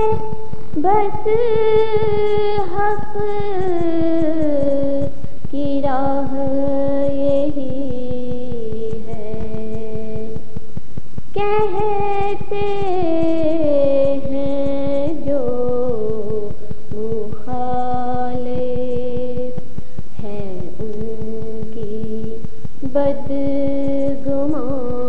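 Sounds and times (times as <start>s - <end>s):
person singing slow long notes: 11.3s - 25.0s.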